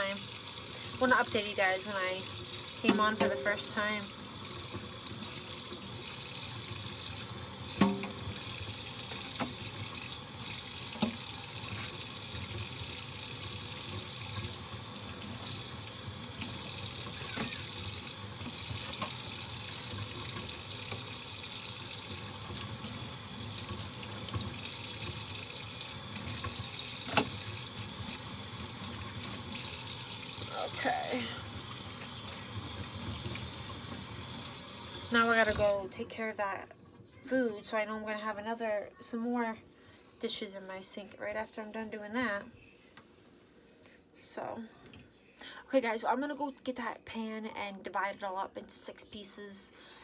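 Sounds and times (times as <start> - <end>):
tap running into sink: 2.8 - 3.7, 7.7 - 10.0, 10.8 - 12.9, 16.4 - 21.2, 26.1 - 29.8.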